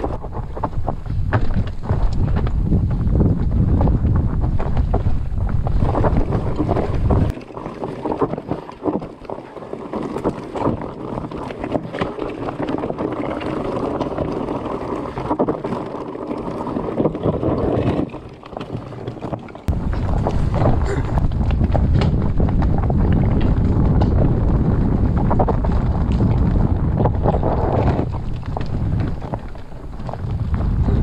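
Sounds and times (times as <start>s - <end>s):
wind buffeting microphone: 0.0s - 8.6s, 19.1s - 31.0s
bike clicking and rattling: 0.0s - 31.0s
bike tyres crunching over stones: 0.0s - 31.0s.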